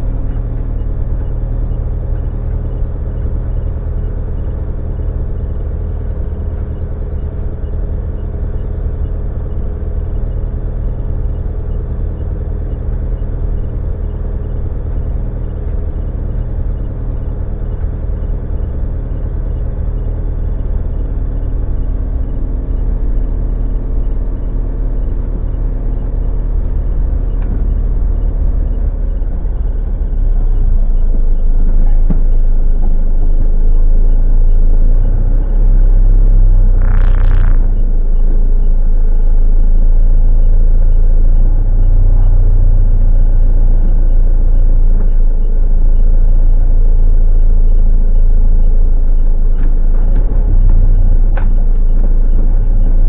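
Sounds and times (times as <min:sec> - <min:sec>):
vehicle engine and road rumble: 0:00.0 - 0:53.0
brief higher-pitched noise: 0:36.8 - 0:37.8.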